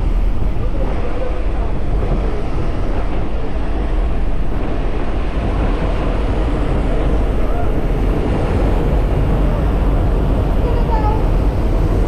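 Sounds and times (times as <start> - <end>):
plane engine and propeller: 0.0 - 12.0
wind rushing: 0.0 - 12.0.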